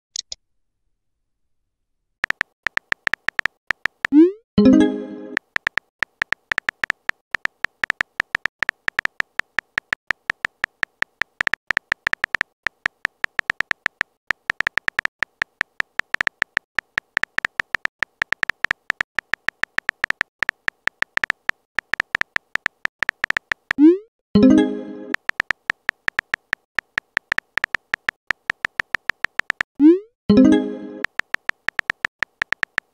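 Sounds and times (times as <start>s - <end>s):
phone keyboard typing clicks: 2.2s - 4.3s, 5.3s - 23.9s, 25.1s - 29.8s, 31.0s - 32.9s
message sent tone and pop: 2.2s - 32.9s.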